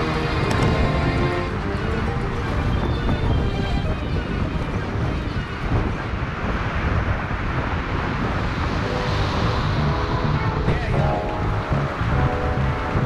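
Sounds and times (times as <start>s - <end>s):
road and traffic noise: 0.0s - 13.0s
wind buffeting microphone: 0.0s - 13.0s
faint music: 8.8s - 13.0s.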